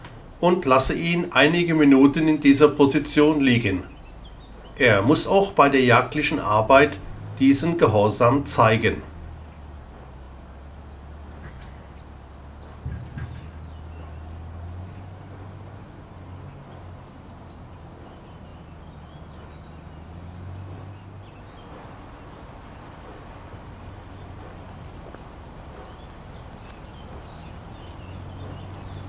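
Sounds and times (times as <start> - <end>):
distant engine drone: 0.0 - 29.0
faint bird chirps: 16.1 - 29.0.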